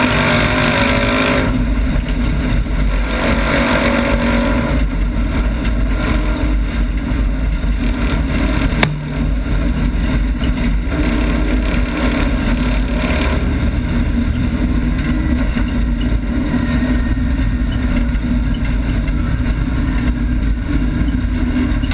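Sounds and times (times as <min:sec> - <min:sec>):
car engine running hard: 0:00.0 - 0:21.9
sharp knock: 0:08.8 - 0:09.4.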